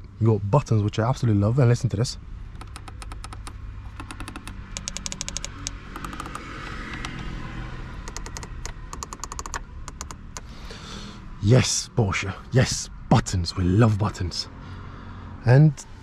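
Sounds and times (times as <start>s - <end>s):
dashboard buttons clicking: 2.5s - 7.3s, 8.0s - 10.5s.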